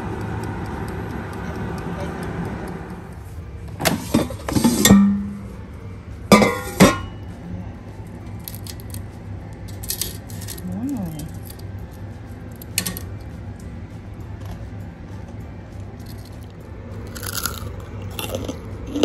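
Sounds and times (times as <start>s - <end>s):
air fryer humming: 0.0s - 19.0s.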